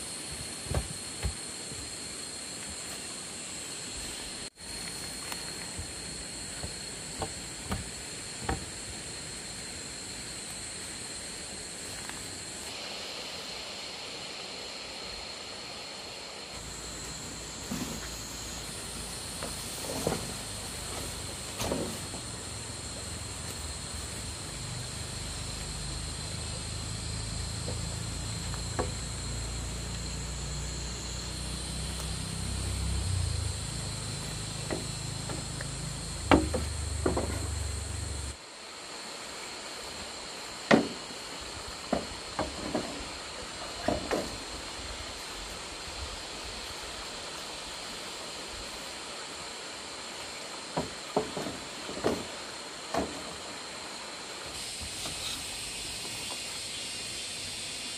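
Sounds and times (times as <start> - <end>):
high hiss with thin whine: 0.0 - 57.9
bamboo poles knocking: 6.5 - 8.7, 34.6 - 37.6, 40.7 - 41.0.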